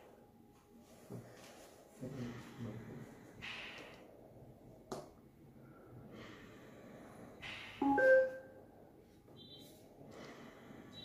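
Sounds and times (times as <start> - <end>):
brief high beep: 7.8 - 8.5
chime-like tone: 7.8 - 8.5.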